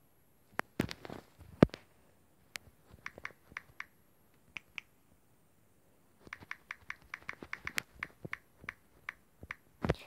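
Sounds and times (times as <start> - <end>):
touchscreen keyboard clicks: 2.6 - 3.9, 4.5 - 4.9, 6.2 - 9.7.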